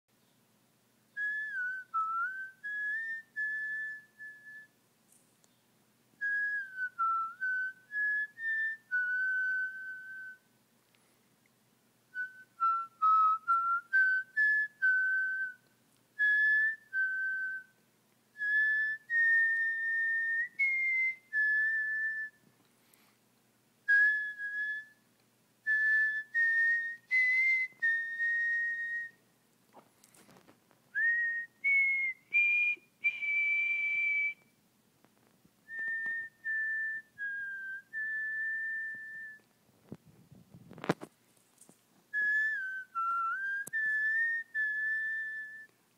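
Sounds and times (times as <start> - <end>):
person whistling a tune: 1.2 - 4.8, 6.2 - 10.5, 12.1 - 17.8, 18.4 - 22.4, 23.9 - 25.0, 25.7 - 29.2, 31.0 - 34.5, 35.7 - 39.5, 42.1 - 45.8.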